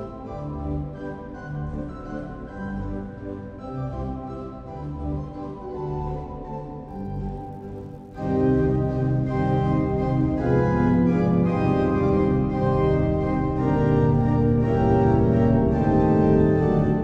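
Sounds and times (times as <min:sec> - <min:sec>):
organ playing held chords: 0:06.8 - 0:17.0.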